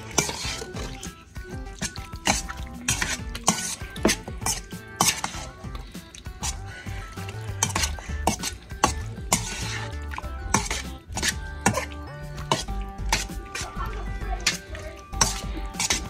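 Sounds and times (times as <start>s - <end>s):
metal utensil clinking against pan: 0.0s - 1.1s, 1.8s - 5.5s, 7.3s - 9.8s, 10.4s - 16.0s
background music with bass line: 0.0s - 16.0s.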